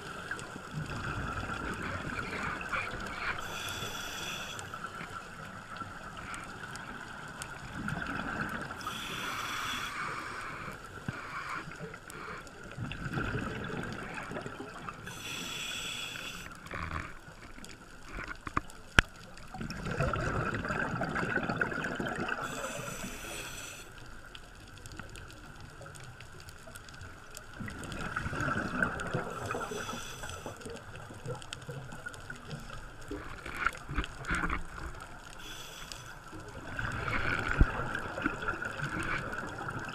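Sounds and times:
gurgling exhaled bubbles: 0.0 - 4.1, 4.8 - 9.4, 10.6 - 15.4, 19.4 - 23.3, 27.5 - 35.6, 36.3 - 39.9
regulator breathing hiss: 2.4 - 5.0, 8.8 - 12.5, 15.0 - 16.9, 22.4 - 24.1, 29.4 - 30.7, 35.4 - 36.4.

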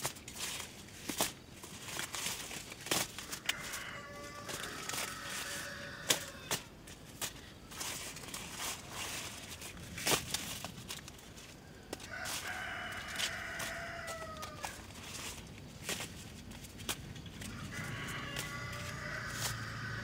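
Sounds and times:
rooster crowing: 3.2 - 6.7, 11.6 - 15.3, 17.4 - 20.0.

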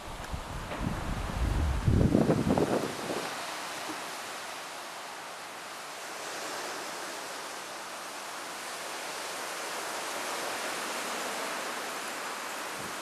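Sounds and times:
steady outdoor hiss: 0.0 - 13.0.

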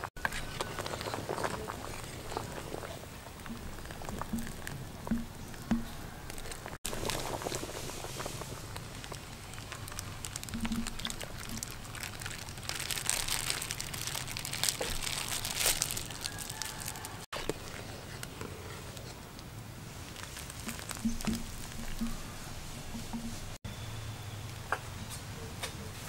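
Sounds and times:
small crackles: 0.0 - 23.6
plastic bag crinkling: 0.2 - 18.3, 20.0 - 22.3.

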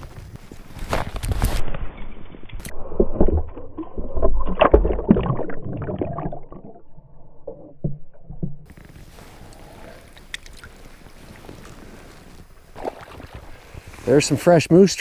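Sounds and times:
stream water sloshing and splashing: 2.7 - 9.2, 10.1 - 14.2
irregular knocks: 7.7 - 8.7.

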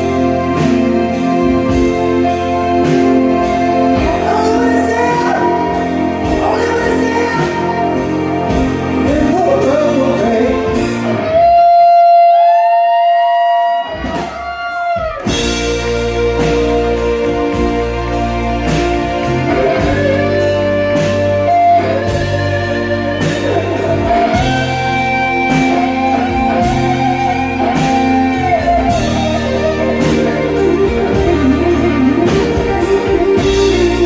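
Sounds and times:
live rock band playing: 0.0 - 34.0
person singing: 0.1 - 13.4.

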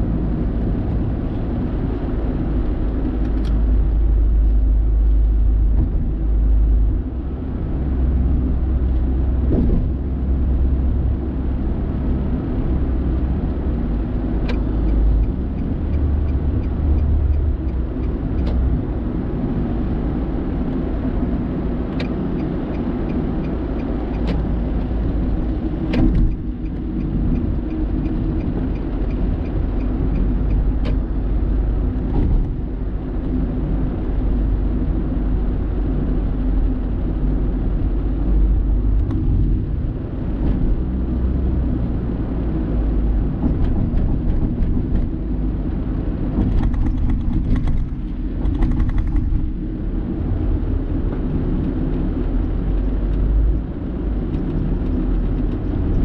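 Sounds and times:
car tyres and engine rumble: 0.0 - 56.0.

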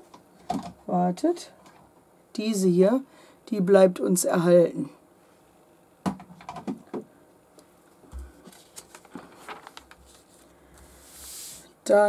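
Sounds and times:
paper pages rustling: 8.2 - 11.6.

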